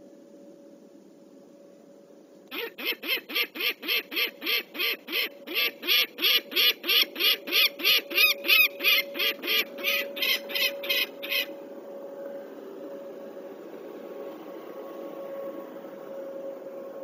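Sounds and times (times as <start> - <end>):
falcon alarm cacking: 2.5 - 11.6.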